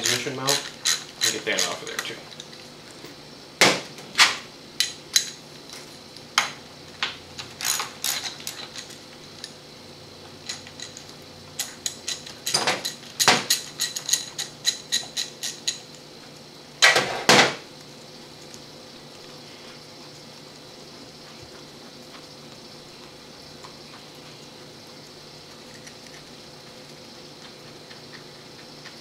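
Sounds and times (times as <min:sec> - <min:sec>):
metal tools clinking on metal: 0:00.0 - 0:02.2.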